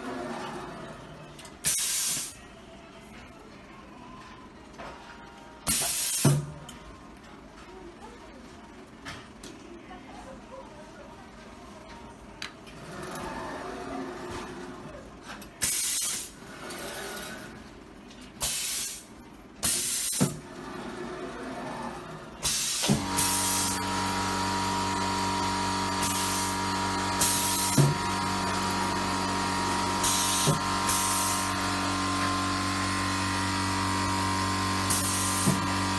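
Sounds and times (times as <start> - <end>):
compressed air hissing: 1.6 - 2.4, 18.4 - 20.3.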